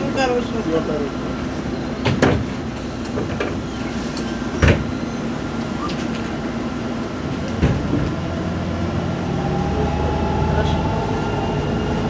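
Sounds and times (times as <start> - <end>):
bus engine hum: 0.0 - 12.0
road noise: 0.0 - 12.0
bus body rattles: 1.4 - 8.5.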